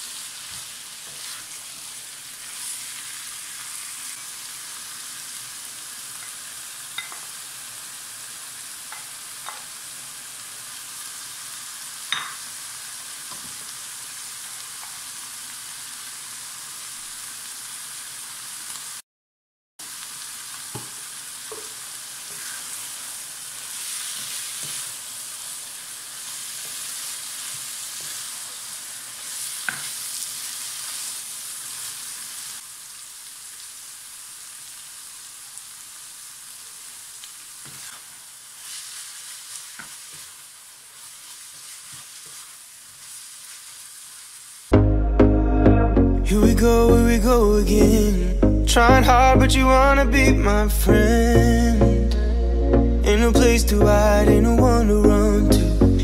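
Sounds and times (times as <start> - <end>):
meat sizzling in a pan: 0.0 - 19.0, 19.8 - 44.8
spatula scraping a pan: 0.4 - 3.1, 21.5 - 25.0, 37.6 - 40.4, 41.0 - 43.8.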